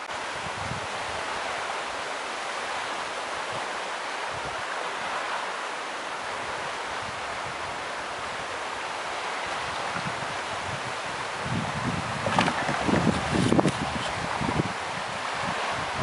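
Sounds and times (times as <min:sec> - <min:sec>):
wind rushing through leaves: 0:00.0 - 0:16.0
wind hitting microphone: 0:09.4 - 0:16.0.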